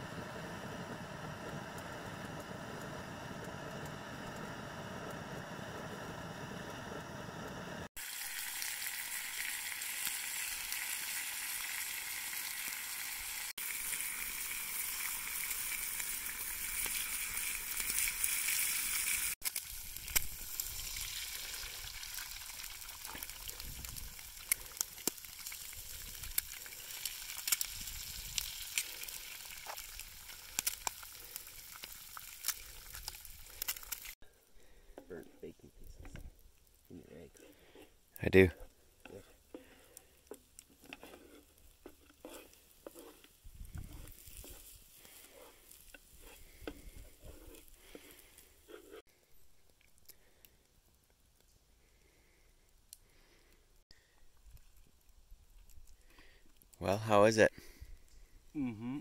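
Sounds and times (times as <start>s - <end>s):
eggs sizzling in a pan: 0.0s - 35.1s, 36.0s - 57.0s
sharp pops and crackles: 13.6s - 56.8s.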